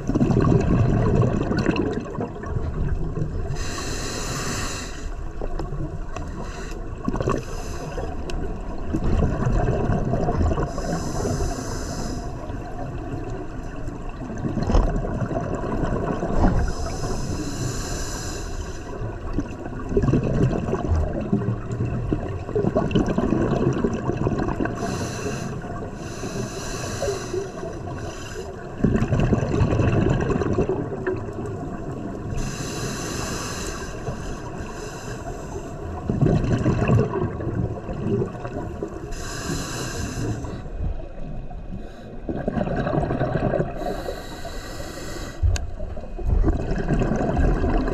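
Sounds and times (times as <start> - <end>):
bubbling exhale underwater: 0.0 - 3.9, 7.0 - 11.6, 14.0 - 17.2, 19.0 - 25.9, 28.8 - 32.6, 35.8 - 40.6, 42.2 - 44.6, 45.8 - 47.9
regulator hissing inhale: 3.5 - 5.2, 6.2 - 8.2, 10.7 - 12.5, 16.6 - 19.0, 24.8 - 28.6, 32.4 - 35.8, 39.1 - 40.8, 41.7 - 42.3, 43.8 - 45.5.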